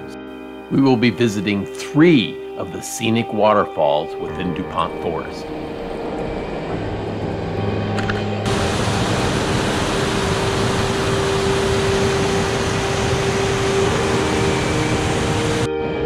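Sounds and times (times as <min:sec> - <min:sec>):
water rushing over boulders: 0:08.4 - 0:15.7.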